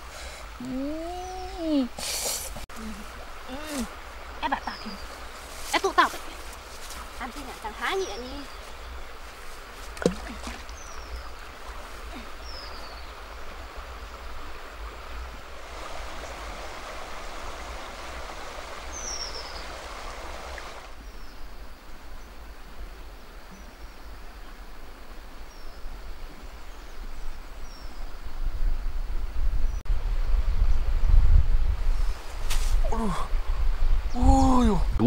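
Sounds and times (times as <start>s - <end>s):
river water flowing: 0.0s - 28.5s
high falling bird chirps: 18.8s - 19.9s.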